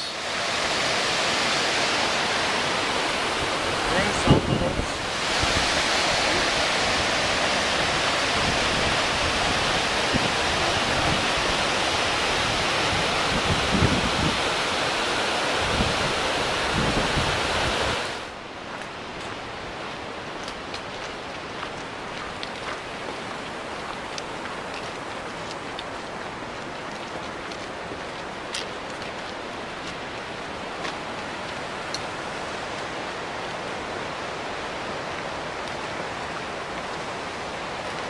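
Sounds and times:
creek water rushing over boulders: 0.0 - 38.0
wind thumps on microphone: 12.5 - 14.4.

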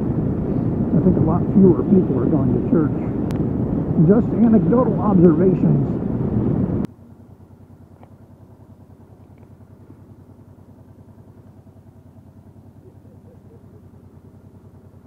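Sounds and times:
wind and road rush: 0.0 - 6.9
motorcycle engine idling: 0.0 - 15.0.

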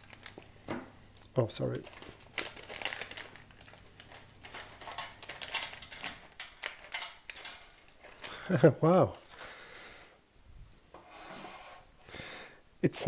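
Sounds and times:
foil pouch crinkling: 0.0 - 0.6, 1.6 - 8.6.

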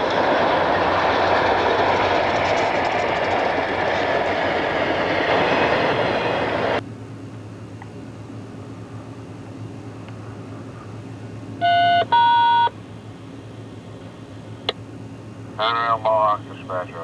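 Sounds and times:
steady low hum: 0.0 - 17.0
short electronic beeps: 11.6 - 12.7.

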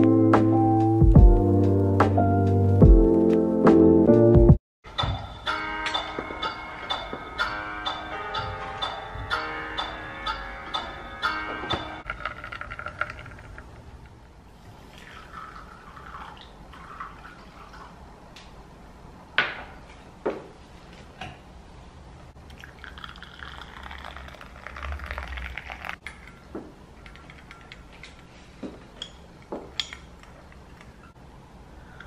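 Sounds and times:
water pouring into a cup: 12.0 - 13.8, 14.5 - 18.0, 22.4 - 26.4.

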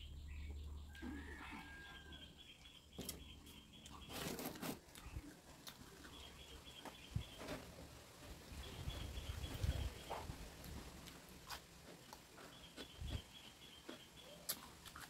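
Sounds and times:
bird chirping: 0.0 - 5.3, 5.9 - 7.6, 8.6 - 10.3, 12.0 - 14.7
chewing: 3.8 - 6.5, 10.2 - 15.0.

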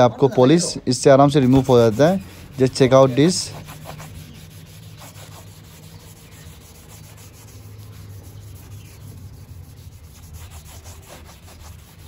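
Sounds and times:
cloth rubbing on painted metal: 0.5 - 12.0.

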